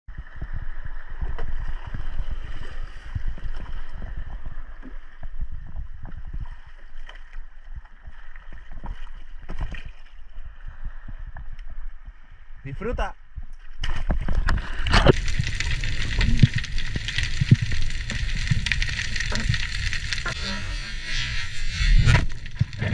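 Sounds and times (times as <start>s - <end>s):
sea water splashing: 13.8s - 20.6s.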